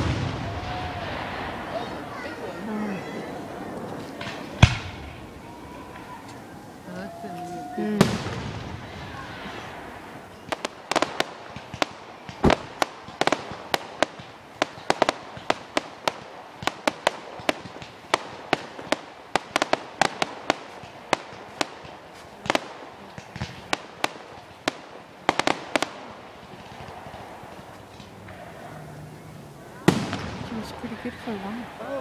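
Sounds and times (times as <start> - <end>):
deep loud firework bang: 0.0 - 6.2, 6.9 - 14.2, 29.8 - 31.6
fireworks bangs and pops: 0.0 - 32.0.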